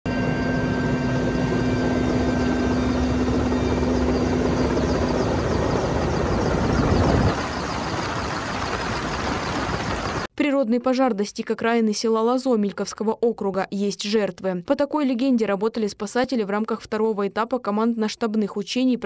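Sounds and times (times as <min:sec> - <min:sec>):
helicopter engines and rotor: 0:00.1 - 0:10.3.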